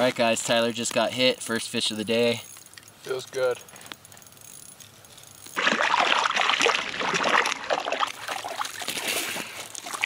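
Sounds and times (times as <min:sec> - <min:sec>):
fish splashing in water: 0:05.6 - 0:10.0.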